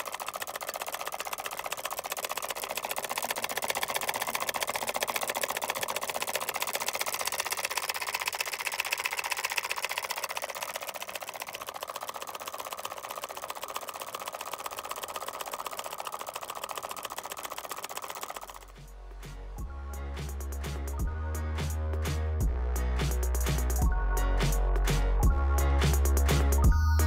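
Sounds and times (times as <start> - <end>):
solenoid engine clattering: 0.0 - 19.7.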